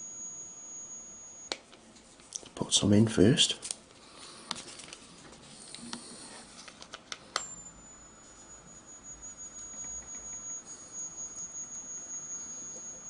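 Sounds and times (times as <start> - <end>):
high-pitched electrical whine: 0.0 - 1.8, 7.3 - 13.0.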